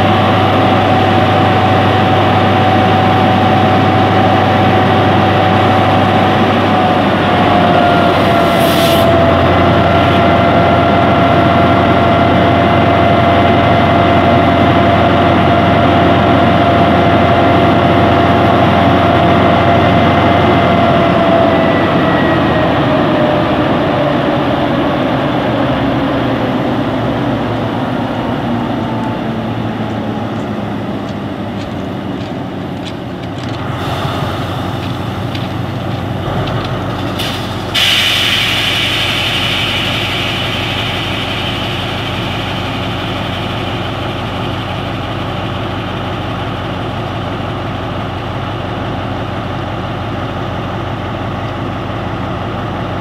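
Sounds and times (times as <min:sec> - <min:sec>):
diesel locomotive engine humming: 0:00.0 - 0:53.0
short hiss: 0:37.1 - 0:42.6.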